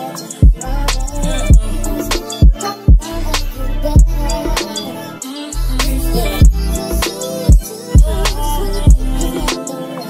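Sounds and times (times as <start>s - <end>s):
background music with a beat: 0.0s - 10.0s
deep bass hits: 0.4s - 2.2s, 3.2s - 4.6s, 5.8s - 7.0s, 8.0s - 9.3s.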